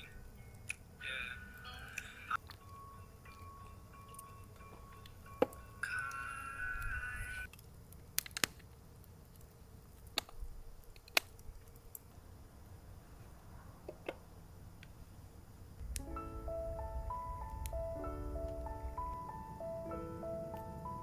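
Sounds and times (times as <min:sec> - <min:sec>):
held ringing tone: 0:01.4 - 0:07.5
low steady rumble: 0:12.2 - 0:21.0.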